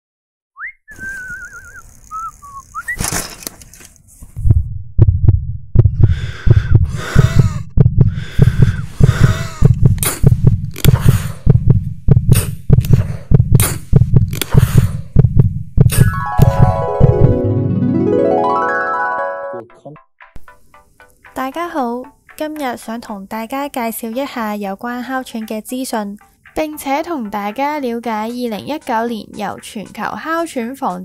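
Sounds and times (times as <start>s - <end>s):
deep heartbeat thumps: 4.4s - 17.4s
rasping gasping breaths: 6.0s - 11.6s.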